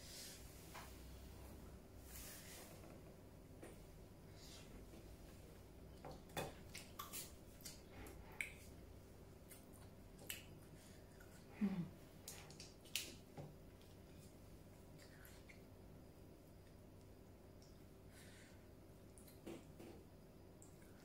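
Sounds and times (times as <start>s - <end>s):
person chewing and lip smacking: 6.6s - 8.7s.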